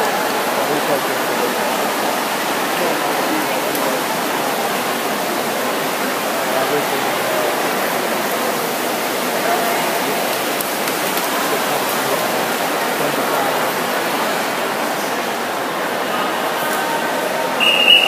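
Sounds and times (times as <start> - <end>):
swimmers splashing: 0.0 - 18.0
spectators shouting: 16.2 - 18.0.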